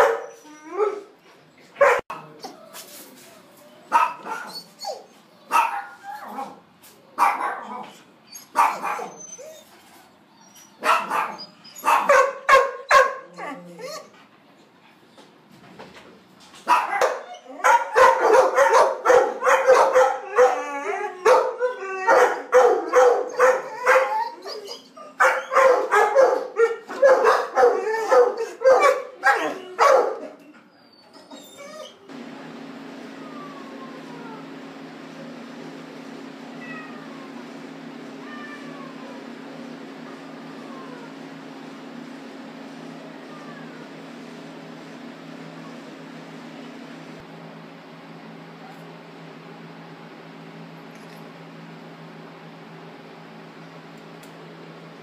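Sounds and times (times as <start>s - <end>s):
dog barking: 0.0s - 1.0s, 1.8s - 2.2s, 3.9s - 4.5s, 5.5s - 6.6s, 7.2s - 7.8s, 8.6s - 9.2s, 10.8s - 13.3s, 16.7s - 20.6s, 21.2s - 24.1s, 25.2s - 30.2s.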